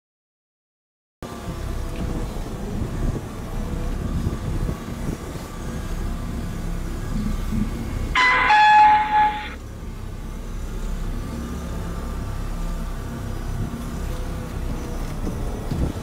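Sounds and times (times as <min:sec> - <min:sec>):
car engine and road rumble: 0:01.2 - 0:16.0
two-note electronic chime: 0:08.2 - 0:09.6.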